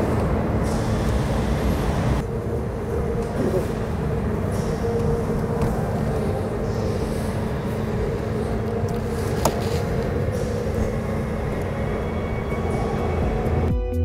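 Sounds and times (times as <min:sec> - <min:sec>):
machinery drone and hum: 0:00.0 - 0:14.0
music: 0:03.1 - 0:14.0.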